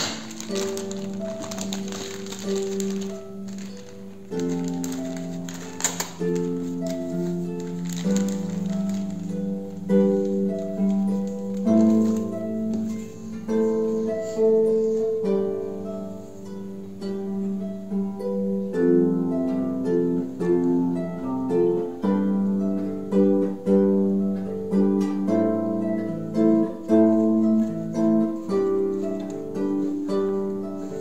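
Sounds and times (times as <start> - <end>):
plucked-string melody: 0.0 - 31.0.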